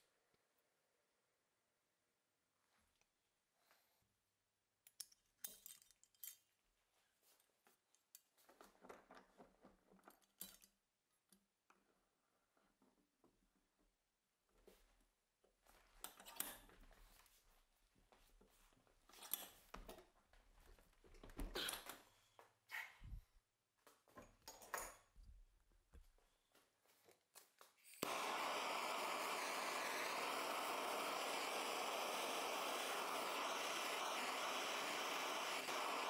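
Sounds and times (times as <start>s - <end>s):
gas torch hissing: 28.0s - 36.0s.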